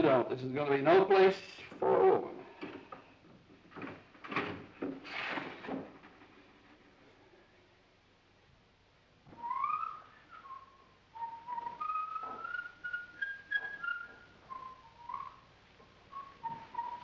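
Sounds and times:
person whistling a tune: 9.4s - 15.3s.

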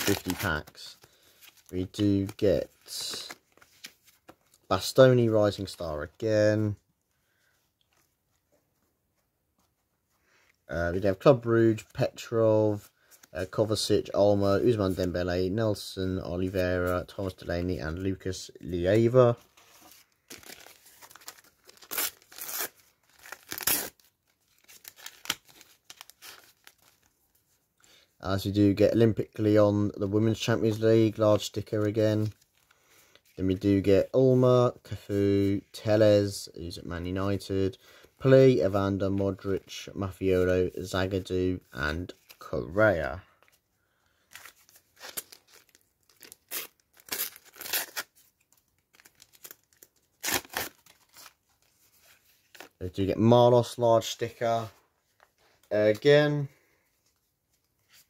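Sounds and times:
paper packet ripping: 0.0s - 4.0s, 20.2s - 27.0s, 44.3s - 48.2s, 48.9s - 51.4s.

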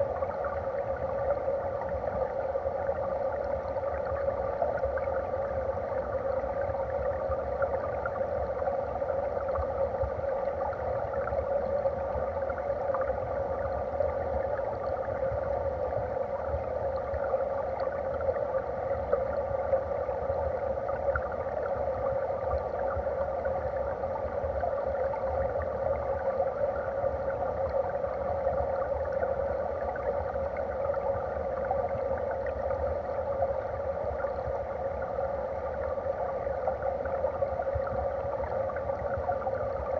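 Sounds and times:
faint ticks and crackles: 0.0s - 39.9s
muffled underwater water rushing: 0.0s - 39.9s.

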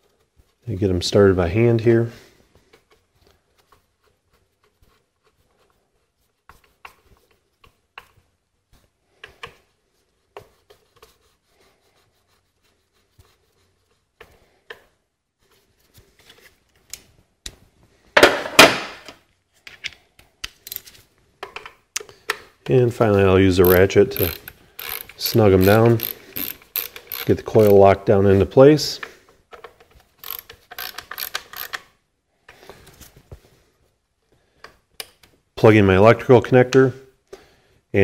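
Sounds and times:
small metal clicks and scrapes: 20.6s - 21.0s, 23.6s - 27.8s, 29.5s - 31.9s.

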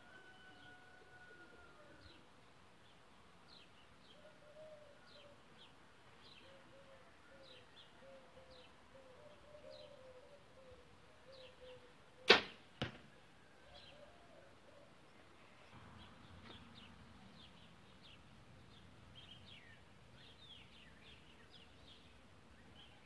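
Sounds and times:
bow shot crack: 12.2s - 13.2s.

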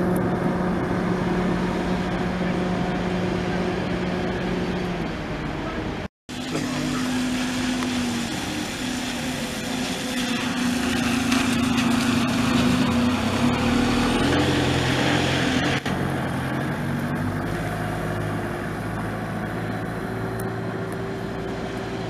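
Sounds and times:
bus engine accelerating: 0.0s - 22.0s
bus engine hum: 0.0s - 22.0s
tyre hiss on wet road: 6.4s - 13.0s.

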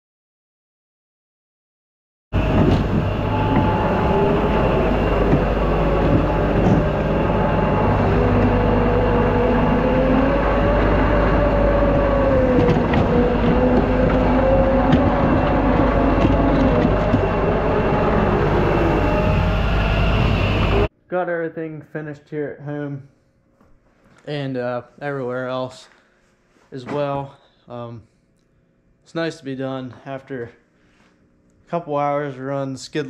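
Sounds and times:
hydraulic whine: 2.4s - 20.9s
loader engine drone: 2.4s - 20.9s.

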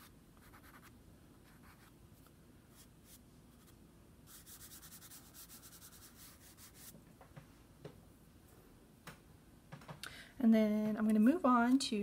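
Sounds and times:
fingertip rubbing pastel on paper: 4.3s - 6.9s.

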